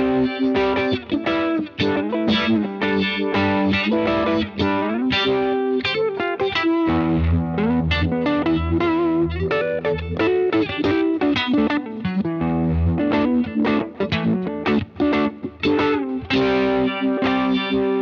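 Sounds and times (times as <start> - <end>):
electric guitar with phaser effect: 0.0 - 18.0
bass notes: 6.9 - 10.5.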